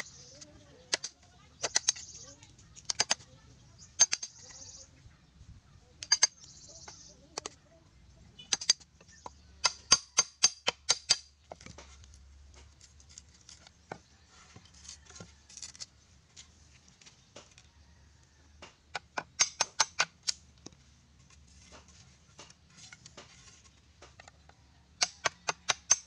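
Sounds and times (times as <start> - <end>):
hammer striking chisel in bamboo: 0.9 - 2.2, 4.0 - 4.4, 8.4 - 14.1, 18.6 - 20.4, 25.0 - 26.0.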